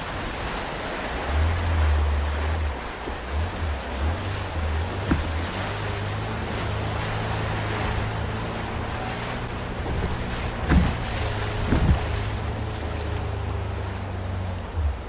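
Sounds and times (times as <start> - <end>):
boat thumping on waves: 0.0 - 15.0
outboard motor running: 0.0 - 15.0
whitewater rushing: 0.0 - 15.0
wind: 0.0 - 15.0.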